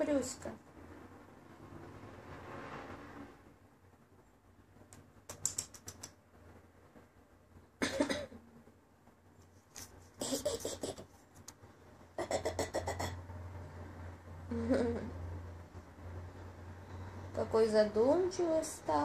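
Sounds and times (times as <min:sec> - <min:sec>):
person stifled laughter: 0:10.2 - 0:11.1, 0:14.5 - 0:15.2.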